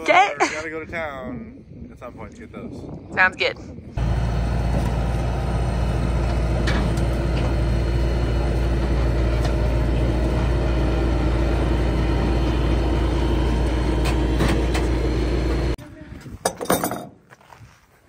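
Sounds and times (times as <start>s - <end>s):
diesel engine running under load: 4.0s - 15.8s.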